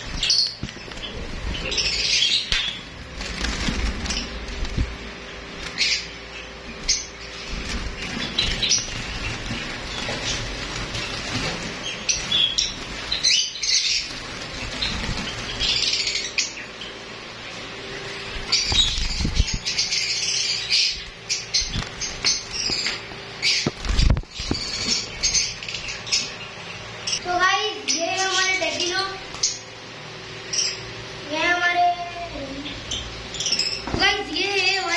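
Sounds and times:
wings fluttering: 0.0s - 27.2s
small birds chirping: 0.0s - 34.9s.

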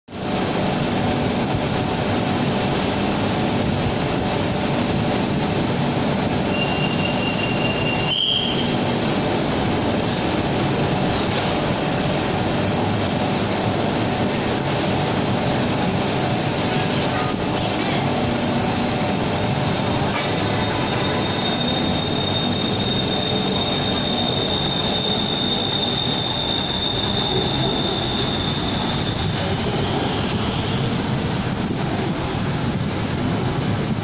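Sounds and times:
high warning tone: 20.4s - 30.3s.

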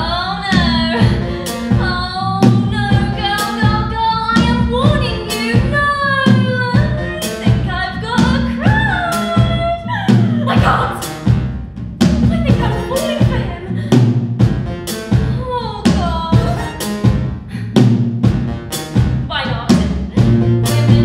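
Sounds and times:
woman singing: 0.0s - 11.2s, 12.3s - 13.8s, 15.4s - 16.8s, 19.3s - 21.0s
bass notes: 0.0s - 21.0s
percussive beat: 0.5s - 21.0s.

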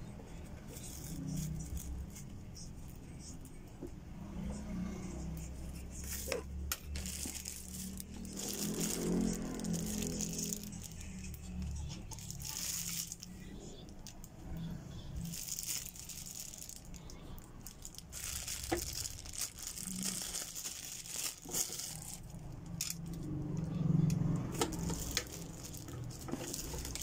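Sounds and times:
plastic wrapping crinkling: 6.1s - 14.2s, 15.2s - 23.2s, 24.5s - 27.0s.

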